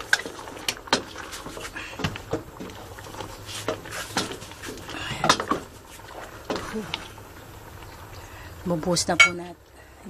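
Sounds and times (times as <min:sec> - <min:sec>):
utensil scraping metal pot: 0:00.0 - 0:06.6
low steady hum: 0:00.0 - 0:10.0.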